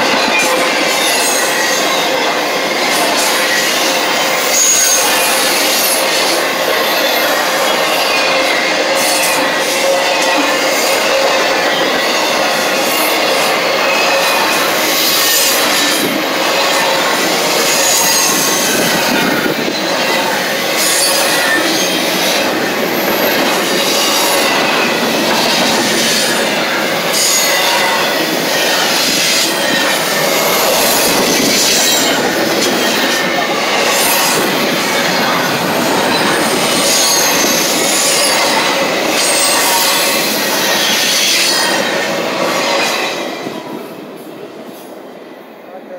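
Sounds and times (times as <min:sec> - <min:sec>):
train wheels rumbling on rail: 0:00.0 - 0:45.9.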